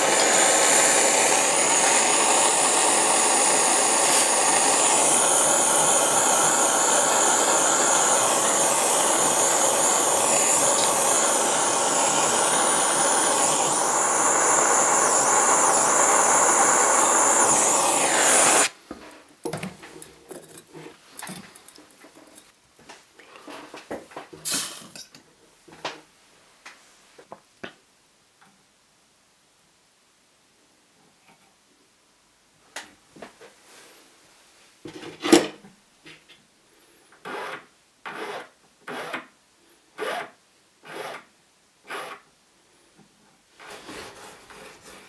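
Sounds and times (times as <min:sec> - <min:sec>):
gas torch hissing: 0:00.0 - 0:18.8.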